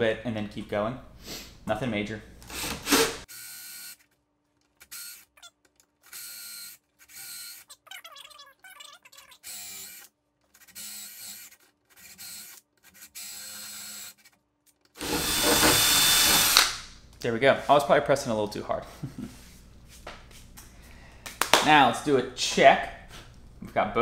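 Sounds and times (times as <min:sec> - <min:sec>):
drill with hole saw cutting wood: 0:02.5 - 0:04.0, 0:04.8 - 0:05.3, 0:06.1 - 0:07.7, 0:09.4 - 0:14.2, 0:15.0 - 0:16.8.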